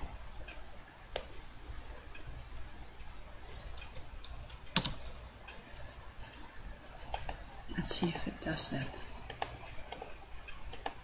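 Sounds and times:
computer keyboard clicks: 3.5 - 5.2.

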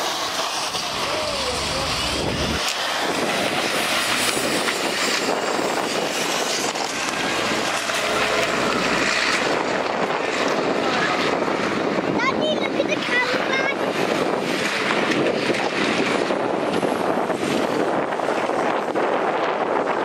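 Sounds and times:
bus diesel engines running: 0.0 - 13.6.

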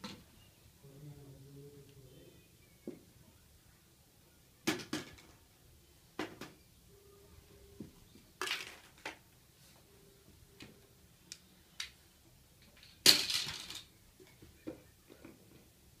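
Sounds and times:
plastic toys clattering: 8.4 - 9.2, 12.6 - 15.7.

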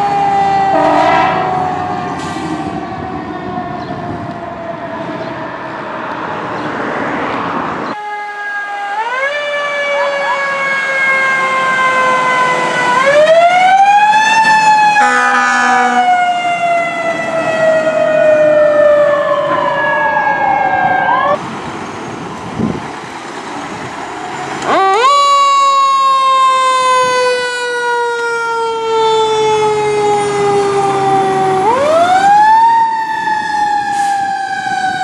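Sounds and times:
fire truck siren wailing: 0.0 - 6.5, 7.9 - 21.4, 23.6 - 35.0
horn blast: 0.7 - 1.8.

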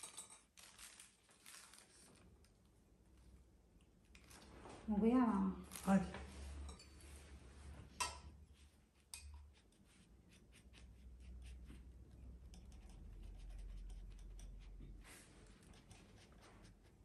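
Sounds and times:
knife scratching through pastry: 8.6 - 17.0.

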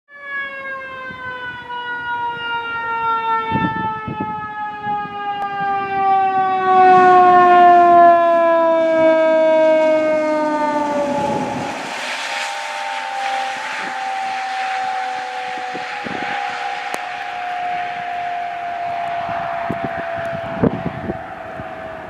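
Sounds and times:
emergency siren falling tone: 0.1 - 22.0
rushing road noise: 5.8 - 22.0.

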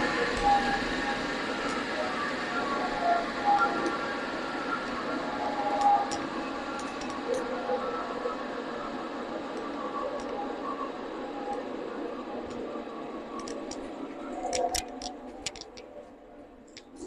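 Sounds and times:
sharp clicks: 14.4 - 15.9.

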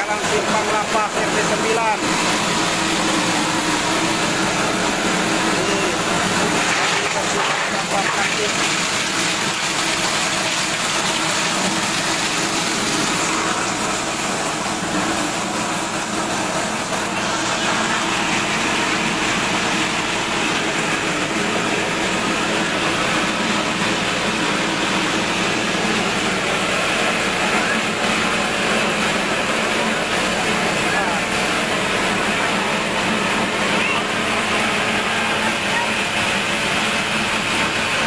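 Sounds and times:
crusher machine loud mechanical din: 0.0 - 38.0.

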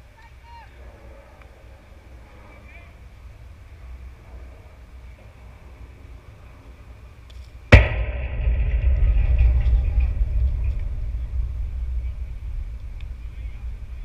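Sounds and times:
low rumble of shaken fence: 7.7 - 14.0.

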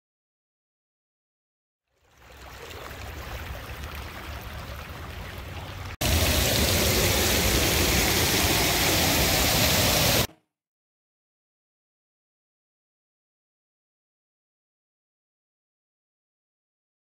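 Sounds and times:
floodwater rushing: 2.0 - 10.3
water pouring onto stone: 6.0 - 10.3.

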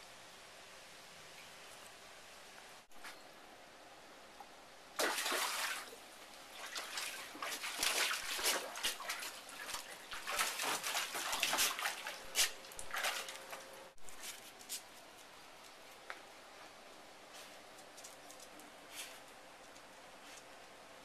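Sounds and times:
water splashing in a pool: 5.0 - 13.8.

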